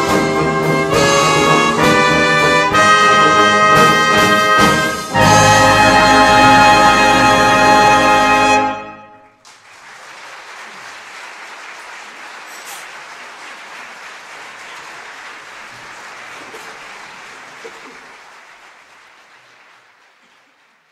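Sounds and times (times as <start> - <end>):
audience applauding: 9.4 - 20.9.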